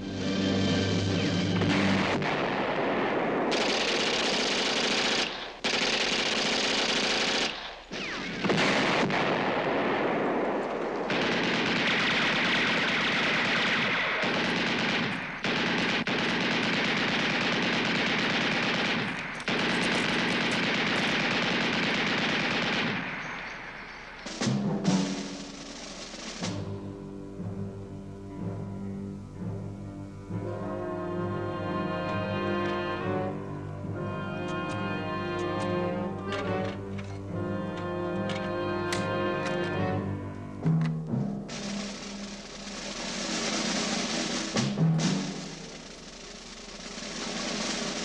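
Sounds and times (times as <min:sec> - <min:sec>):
machine-gun fire: 0:01.6 - 0:26.8, 0:41.5 - 0:48.0.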